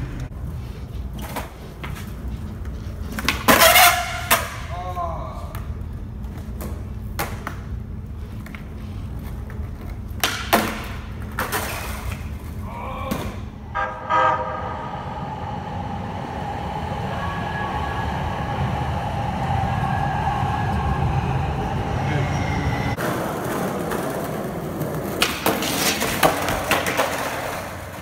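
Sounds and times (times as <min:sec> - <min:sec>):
skateboard wheels rolling on pavement: 0:00.0 - 0:04.8, 0:05.5 - 0:12.7, 0:14.6 - 0:28.0
skateboard clacks: 0:01.2 - 0:04.7, 0:05.5 - 0:12.4, 0:23.0 - 0:28.0
train horn: 0:13.6 - 0:15.3
train running by with whine: 0:13.6 - 0:24.8.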